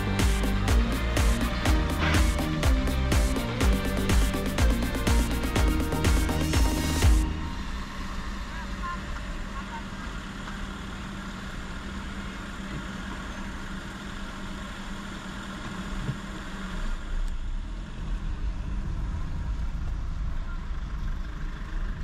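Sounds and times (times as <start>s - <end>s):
low rumble: 0.0s - 10.0s, 16.9s - 22.0s
steady hum: 0.0s - 12.5s
car engine running: 0.0s - 22.0s
road noise: 0.0s - 22.0s.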